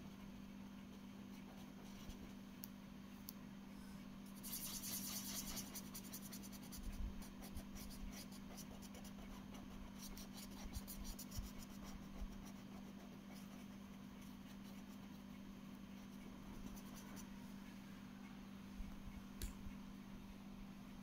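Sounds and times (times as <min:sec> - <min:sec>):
steady low hum: 0:00.0 - 0:21.0
marker pen scratching on paper: 0:04.4 - 0:15.3.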